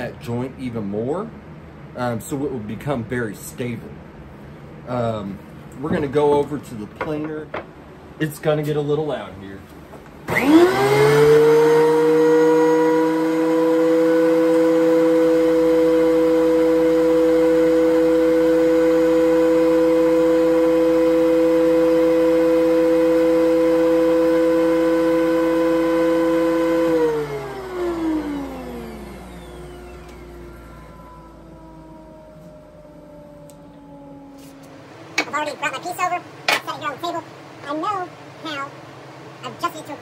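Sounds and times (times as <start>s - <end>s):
planer motor whining: 10.3s - 35.7s.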